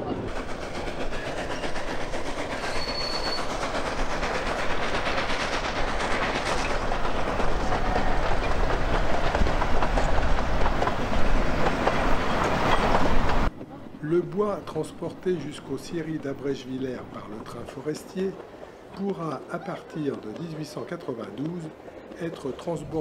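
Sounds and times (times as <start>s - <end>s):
steam train rumbling: 0.0s - 23.0s
wheels clattering on rails: 0.0s - 23.0s.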